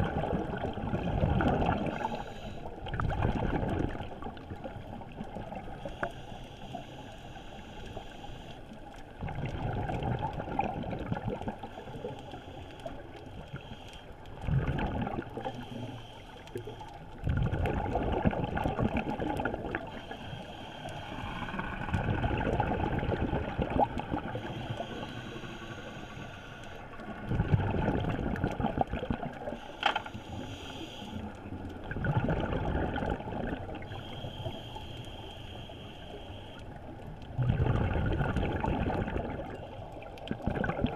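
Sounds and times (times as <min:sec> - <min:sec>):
exhaled bubbles underwater: 0:00.0 - 0:06.0, 0:08.9 - 0:12.2, 0:12.9 - 0:20.3, 0:20.9 - 0:25.9, 0:26.9 - 0:29.6, 0:31.2 - 0:34.2, 0:36.7 - 0:40.9
regulator inhalation hiss: 0:02.0 - 0:02.7, 0:05.8 - 0:08.7, 0:19.9 - 0:21.6, 0:24.4 - 0:27.0, 0:29.6 - 0:31.3, 0:33.9 - 0:36.8.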